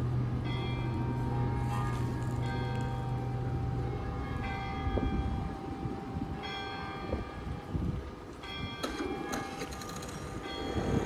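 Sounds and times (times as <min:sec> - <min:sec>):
low machinery hum: 0:00.0 - 0:06.6
warning bell ringing: 0:00.0 - 0:07.8.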